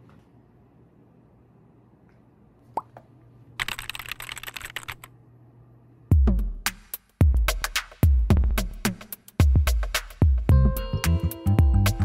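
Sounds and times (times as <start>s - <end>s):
low room hum: 0.0s - 6.3s
electronic music with drum kicks: 6.1s - 12.0s.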